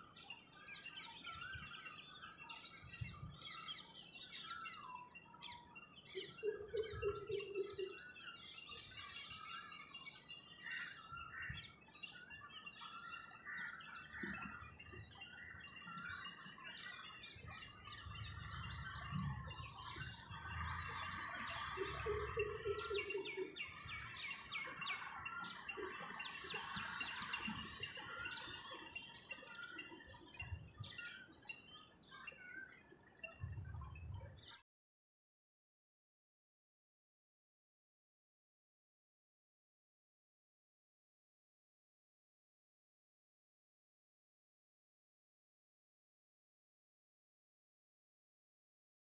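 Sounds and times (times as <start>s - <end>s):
small birds chirping: 0.0s - 34.6s.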